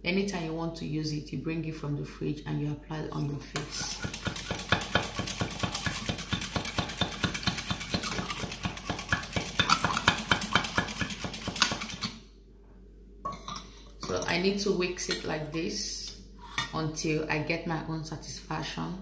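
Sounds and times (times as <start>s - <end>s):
metal whisk clinking in bowl: 3.8s - 11.9s.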